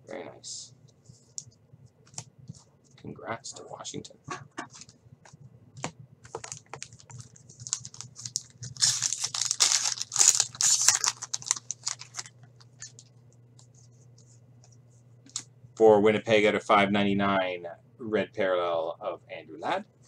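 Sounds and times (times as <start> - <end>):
foil wrapper tearing: 6.4 - 13.0.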